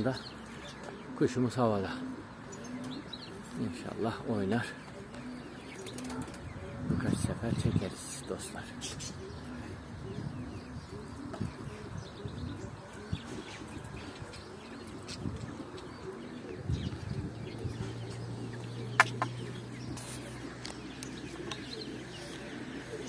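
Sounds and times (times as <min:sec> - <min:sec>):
pigeons cooing: 0:00.0 - 0:23.0.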